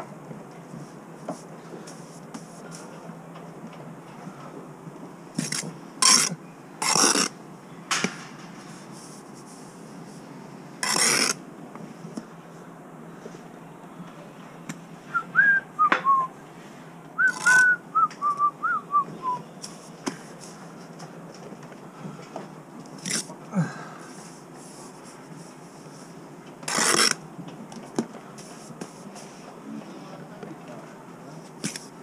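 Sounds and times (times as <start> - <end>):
short scraping noises: 8.1 - 11.4, 26.7 - 27.2
person whistling a tune: 15.1 - 16.3, 17.2 - 19.4.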